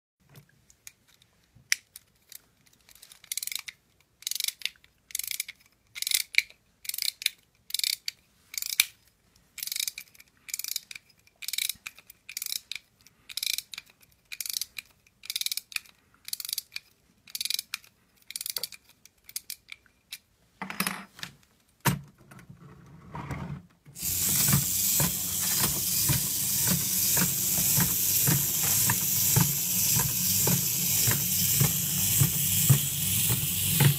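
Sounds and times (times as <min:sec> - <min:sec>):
clockwork key ratchet clicking: 0:03.2 - 0:08.9, 0:09.6 - 0:19.8, 0:24.0 - 0:33.9
clockwork motor whirring: 0:24.0 - 0:33.9.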